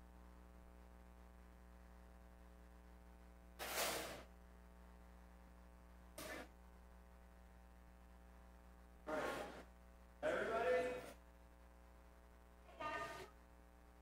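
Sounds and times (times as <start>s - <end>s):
electrical mains hum: 0.0s - 14.0s.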